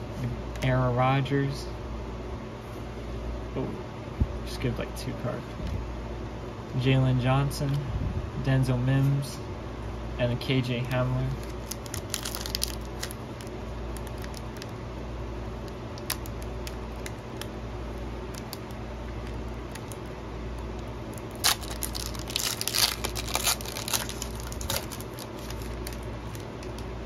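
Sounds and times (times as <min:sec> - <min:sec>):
steady low hum: 0:00.0 - 0:27.0
foil wrapper crinkling and tearing: 0:11.3 - 0:14.8, 0:15.6 - 0:17.6, 0:18.2 - 0:26.9.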